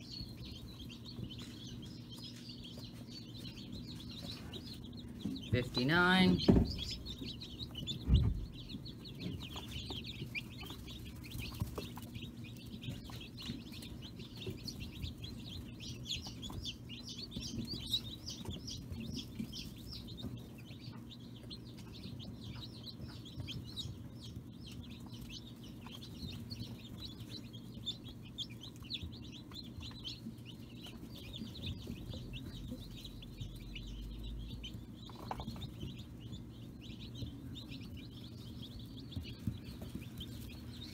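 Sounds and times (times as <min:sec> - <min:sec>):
chicks peeping: 0:00.0 - 0:40.9
thump: 0:06.4 - 0:06.9.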